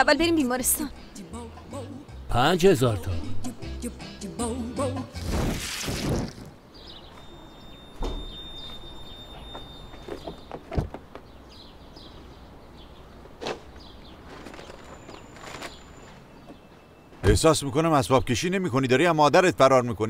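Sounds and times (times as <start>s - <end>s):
birds chirping: 6.5s - 18.2s
car doors opening and shutting: 7.1s - 11.3s.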